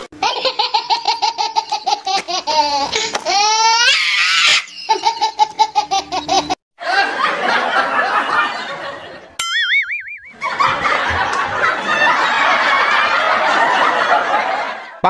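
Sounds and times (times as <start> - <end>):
squealing whoop: 3.6 - 4.8.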